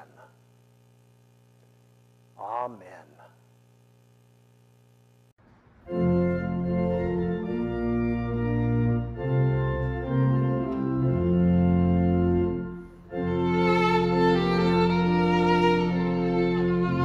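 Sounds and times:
church organ playing chords: 5.6s - 17.0s.

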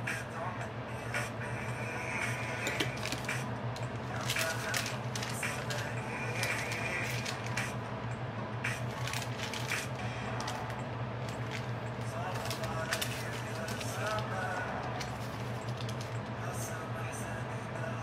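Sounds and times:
steady low hum: 0.0s - 18.0s
paper receipts rustling: 2.7s - 7.7s, 8.8s - 16.3s.

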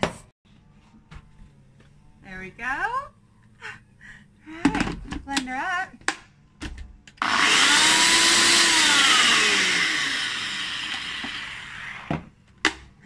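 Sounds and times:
blender motor running: 7.2s - 12.2s.

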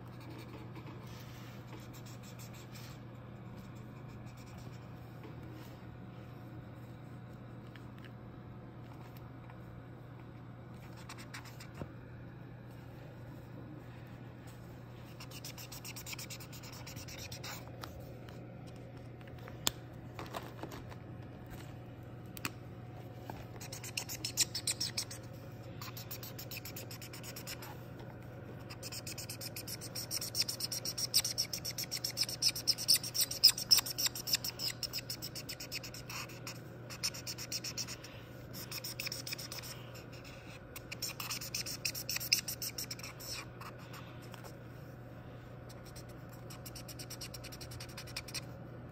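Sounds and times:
marker scribbling on paper: 0.0s - 3.0s, 15.1s - 17.7s, 23.6s - 27.8s, 28.6s - 43.8s, 45.7s - 48.4s
faint low hum: 0.0s - 48.9s.

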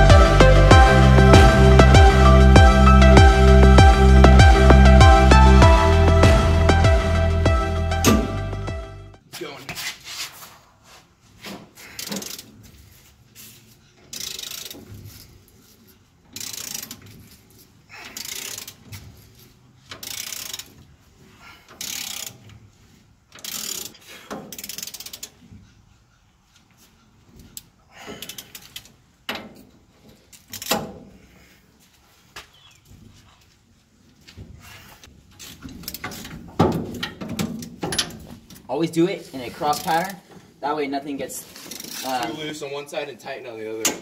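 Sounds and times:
ratchet wrench clicking: 12.0s - 12.6s, 14.1s - 15.2s, 16.3s - 17.4s, 18.0s - 19.0s, 19.9s - 20.9s, 21.7s - 22.5s, 23.3s - 25.4s, 27.6s - 29.0s, 30.3s - 30.9s.

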